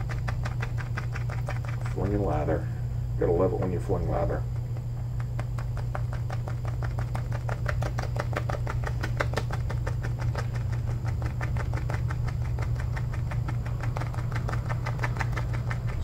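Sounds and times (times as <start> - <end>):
shaving brush whipping lather: 0.0 - 2.5
steady low hum: 0.0 - 16.0.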